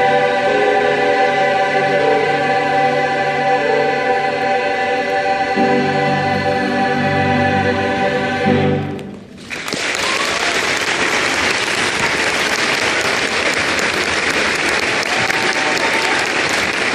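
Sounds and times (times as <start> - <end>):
choir holding chord: 0.0 - 9.1
audience applause: 9.4 - 16.9.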